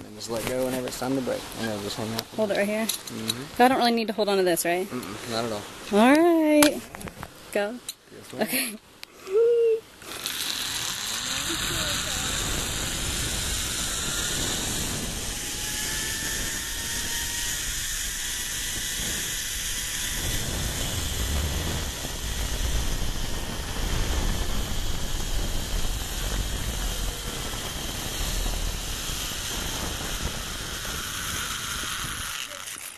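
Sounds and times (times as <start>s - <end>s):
zip-line trolley whirring on cable: 9.3s - 32.9s
wind rushing over microphone: 10.6s - 32.6s.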